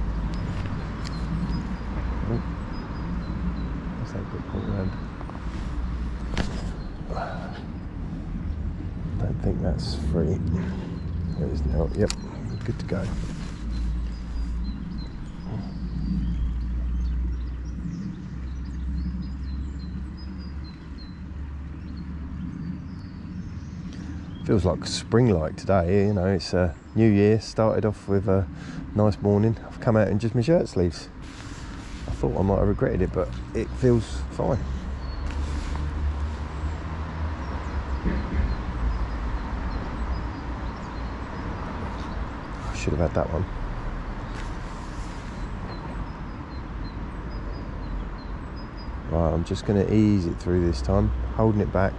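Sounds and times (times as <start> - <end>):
low outdoor rumble: 0.0 - 51.9
small birds chirping: 0.0 - 51.9
background hiss: 26.4 - 36.8.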